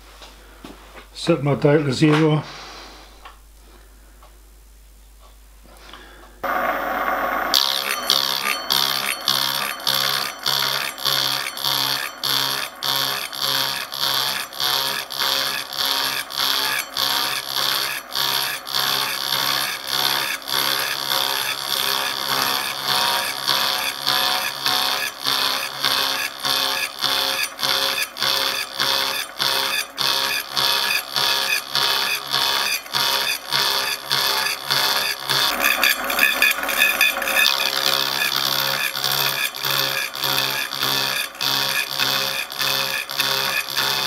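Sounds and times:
motor humming: 0:05.8 - 0:44.0
disc cutter sawing metal: 0:06.4 - 0:44.0.

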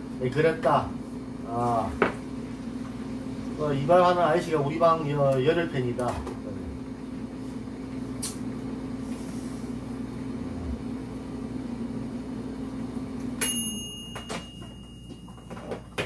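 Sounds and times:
thin high ringing tone: 0:13.4 - 0:16.0.

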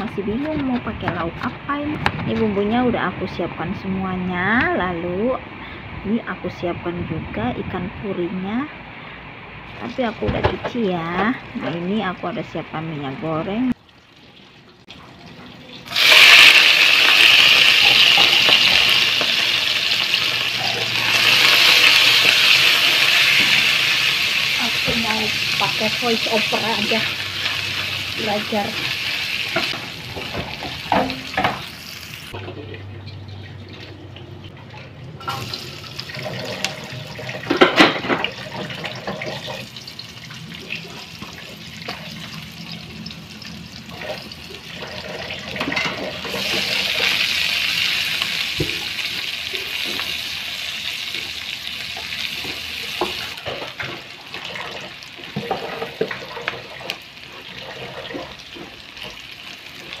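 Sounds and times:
hot oil sizzling in a wok: 0:15.8 - 0:32.4, 0:35.2 - 1:00.0
spatula scraping a pan: 0:52.4 - 0:59.2.

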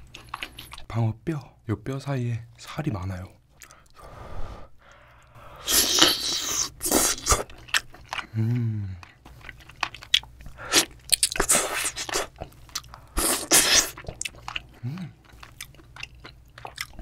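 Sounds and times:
chewing and sucking: 0:04.9 - 0:17.0
closed-mouth hum: 0:08.2 - 0:09.4, 0:10.4 - 0:15.4.

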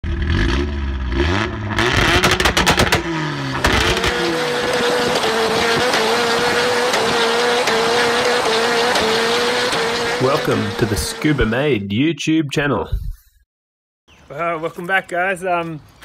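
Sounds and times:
car engine revving hard: 0:00.0 - 0:11.7
engine cracks: 0:01.8 - 0:11.6.

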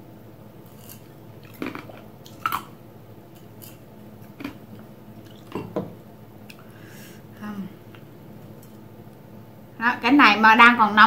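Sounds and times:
person sipping and swallowing: 0:01.4 - 0:02.7, 0:03.6 - 0:05.9.

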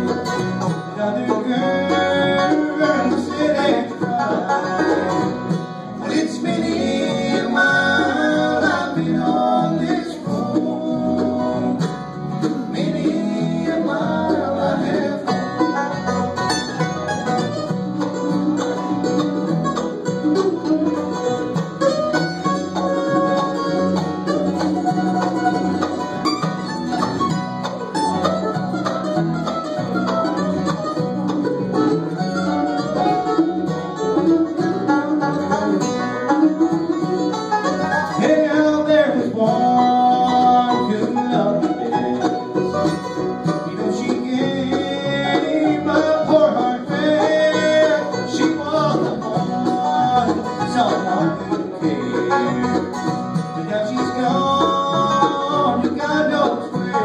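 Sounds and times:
bluegrass band playing: 0:00.0 - 0:57.0
man singing: 0:00.6 - 0:05.4, 0:06.0 - 0:15.9, 0:38.0 - 0:42.5, 0:43.4 - 0:52.8, 0:53.4 - 0:57.0.

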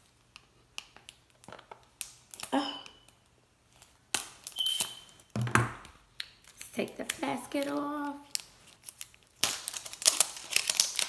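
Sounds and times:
plastic rustling: 0:06.4 - 0:11.0
scissors snipping plastic packaging: 0:06.4 - 0:11.0.

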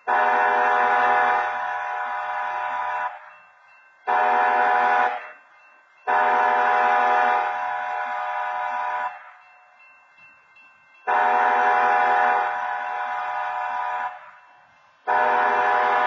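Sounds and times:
train air horn blasts: 0:00.0 - 0:03.3, 0:04.1 - 0:05.3, 0:06.1 - 0:09.3, 0:11.1 - 0:14.4, 0:15.0 - 0:16.0.

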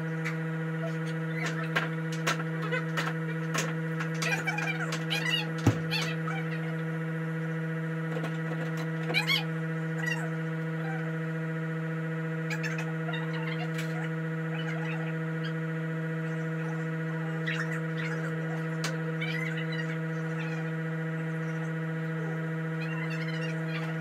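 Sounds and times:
steady hum with overtones: 0:00.0 - 0:24.0
high chirps and squeaks: 0:04.1 - 0:06.7, 0:12.5 - 0:15.6, 0:22.8 - 0:24.0.

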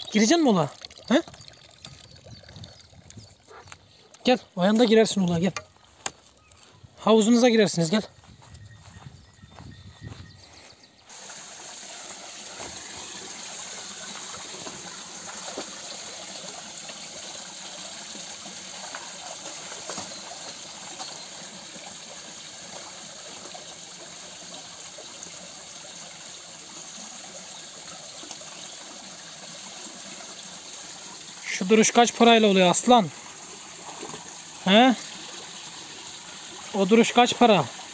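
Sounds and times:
water gushing into pool: 0:00.0 - 0:03.2, 0:11.1 - 0:37.9.

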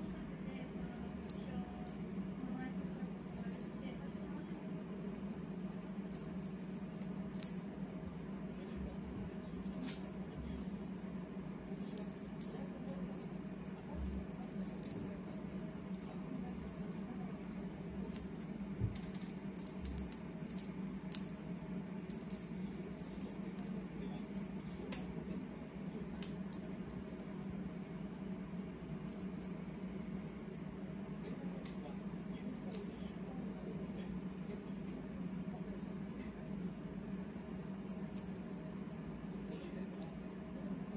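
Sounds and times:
steady low hum: 0:00.0 - 0:40.9
feather cat toy rattling: 0:01.2 - 0:02.0, 0:03.2 - 0:04.3, 0:05.2 - 0:07.8, 0:09.2 - 0:10.8, 0:11.6 - 0:17.4, 0:18.0 - 0:18.7, 0:19.6 - 0:25.2, 0:26.2 - 0:26.8, 0:28.7 - 0:30.7, 0:32.3 - 0:34.1, 0:35.3 - 0:36.1, 0:37.4 - 0:38.7.

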